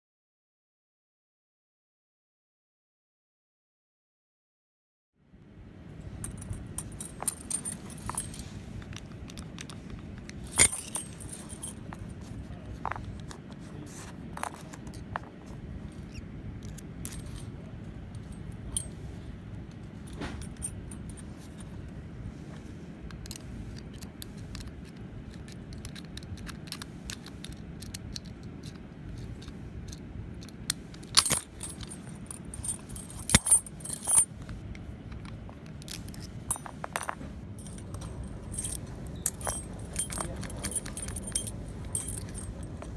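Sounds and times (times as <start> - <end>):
keys jangling against padlock: 6.1 - 13.6, 14.4 - 19.0, 19.7 - 21.9, 23.1 - 42.9
padlock clicks: 23.1 - 34.3.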